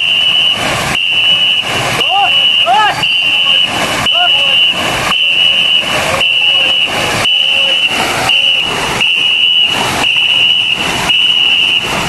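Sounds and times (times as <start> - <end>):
paddles splashing in water: 0.0 - 12.0
shrill high pacing tone: 1.0 - 10.6.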